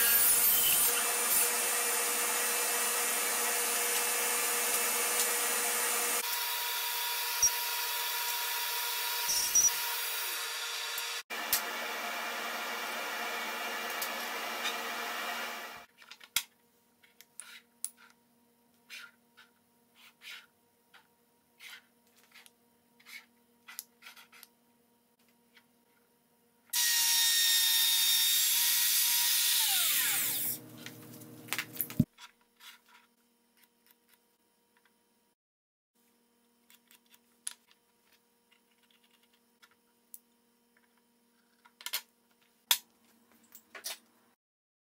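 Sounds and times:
table saw motor running: 0:00.0 - 0:15.9, 0:26.8 - 0:30.6
power tool running and winding down: 0:00.8 - 0:15.9, 0:26.8 - 0:30.6.

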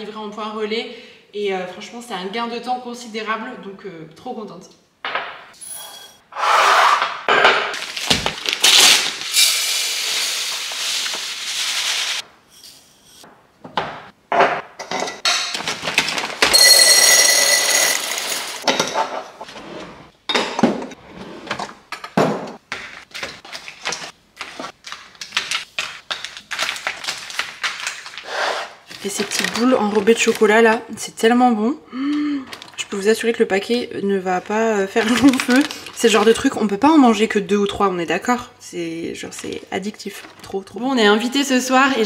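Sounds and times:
plastic packets clicking and knocking: 0:07.7 - 0:09.3, 0:15.2 - 0:16.6, 0:21.9 - 0:28.3, 0:28.9 - 0:30.8, 0:32.4 - 0:32.9, 0:35.0 - 0:36.6.

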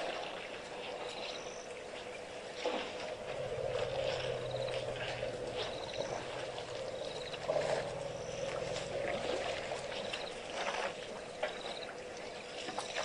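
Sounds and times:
low drone: 0:02.6 - 0:12.4.

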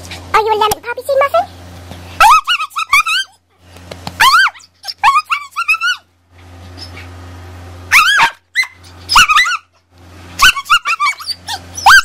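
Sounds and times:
dog whining yowls: 0:02.2 - 0:03.4, 0:04.2 - 0:06.0, 0:07.9 - 0:09.8, 0:10.4 - 0:12.0.

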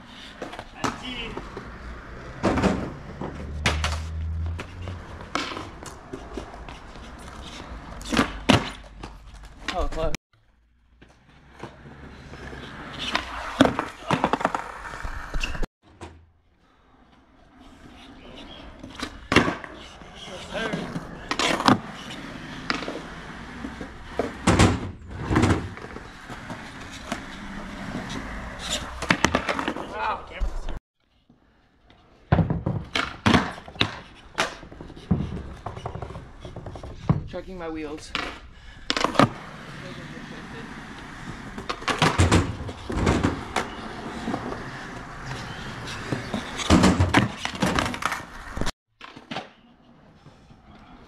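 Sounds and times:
skateboard wheels rolling on concrete: 0:00.0 - 0:51.0
skateboard clacks: 0:00.4 - 0:08.8, 0:18.8 - 0:24.7, 0:25.3 - 0:30.0, 0:32.3 - 0:37.1, 0:38.1 - 0:49.7.

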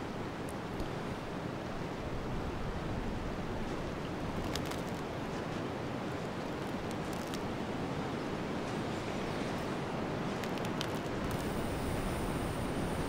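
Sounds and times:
wind blowing: 0:08.1 - 0:13.0.

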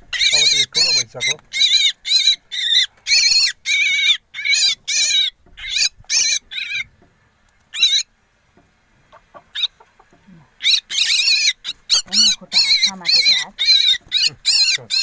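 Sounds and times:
bird chick harsh begging calls: 0:00.1 - 0:06.9, 0:07.7 - 0:08.1, 0:10.6 - 0:15.0.

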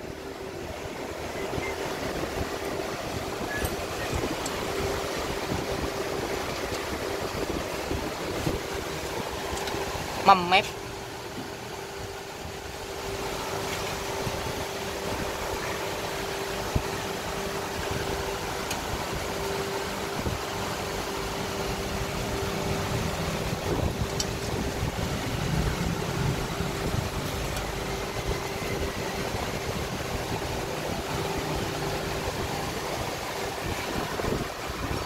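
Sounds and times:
constant hum: 0:00.0 - 0:35.0.

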